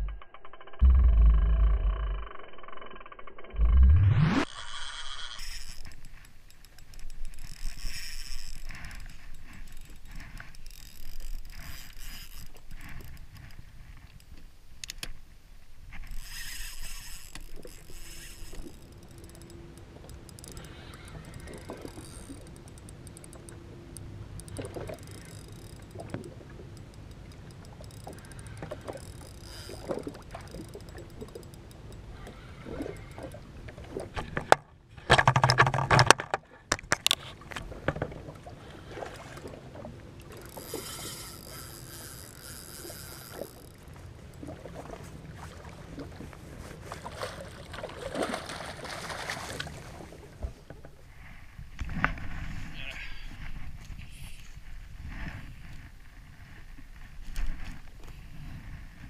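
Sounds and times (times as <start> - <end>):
fishing reel winding: 0.0 - 15.1, 16.0 - 33.2, 40.3 - 44.0
water lapping against hull: 4.6 - 14.4, 15.6 - 59.0.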